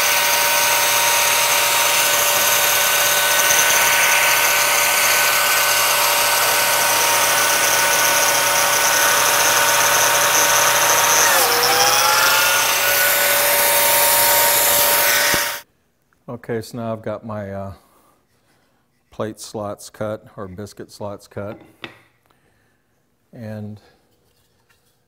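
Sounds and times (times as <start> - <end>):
biscuit joiner motor whine: 0.0 - 15.6.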